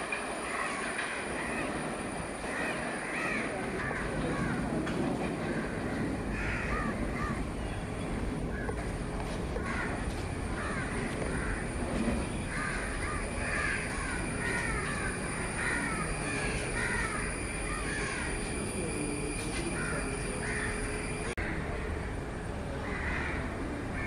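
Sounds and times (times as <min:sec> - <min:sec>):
steady background hiss: 0:00.0 - 0:24.0
birds calling: 0:09.6 - 0:21.4.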